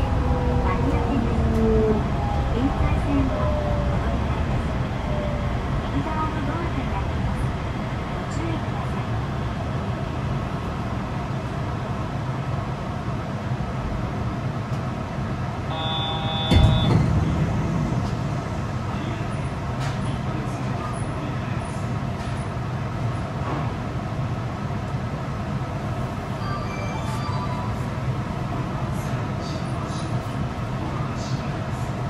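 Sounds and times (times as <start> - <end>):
train hum and rumble: 0.0 - 32.0
short electronic beep: 15.7 - 17.2
sharp thump: 16.4 - 20.3.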